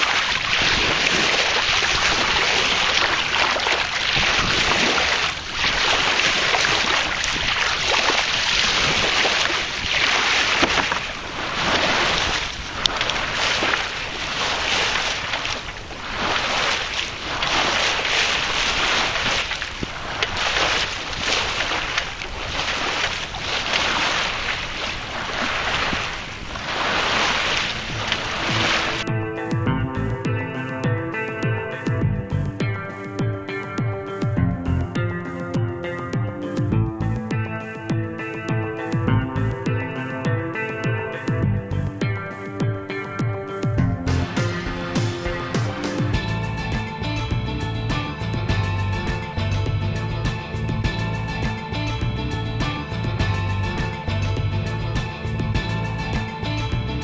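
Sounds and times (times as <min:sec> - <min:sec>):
water rushing along hull: 0:00.0 - 0:29.7, 0:43.6 - 0:57.0
wind on microphone: 0:00.0 - 0:30.4.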